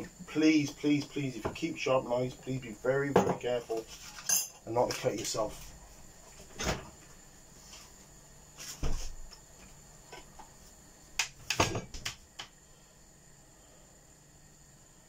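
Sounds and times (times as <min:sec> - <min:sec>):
kitchenware clatter: 0:03.2 - 0:03.4, 0:04.1 - 0:04.6.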